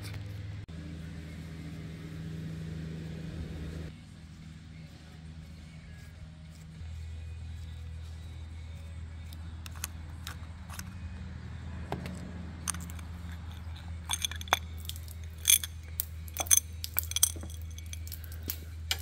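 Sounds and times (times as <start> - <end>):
metal clicks and clinks: 12.6 - 19.0.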